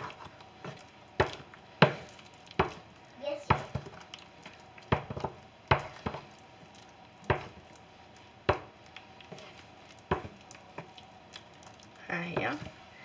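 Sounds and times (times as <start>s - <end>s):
wooden spoon knocking a saucepan: 0.0s - 2.8s, 3.4s - 4.1s, 4.8s - 6.3s, 7.2s - 7.6s, 8.4s - 9.4s, 10.0s - 11.0s, 12.2s - 12.7s
mashed potatoes squishing: 0.0s - 12.9s.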